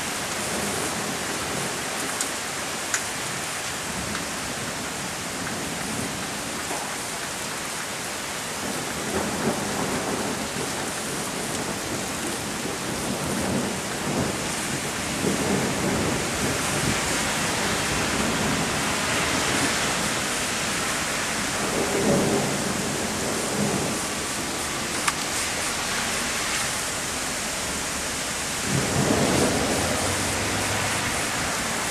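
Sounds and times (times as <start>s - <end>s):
heavy rain hissing: 0.0s - 31.9s
low thunder rumbling: 8.7s - 31.9s.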